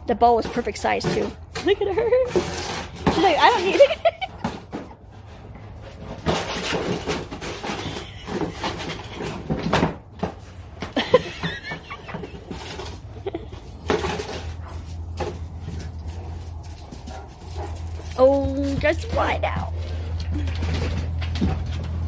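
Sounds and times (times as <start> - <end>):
paws scuffling on concrete: 0.1 - 22.0
dog noises: 11.6 - 21.1.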